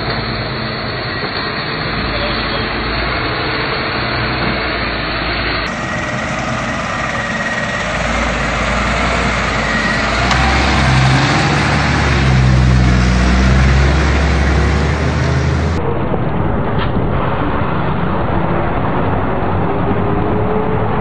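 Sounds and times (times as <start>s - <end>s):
bus diesel engine at low revs: 0.0s - 15.8s.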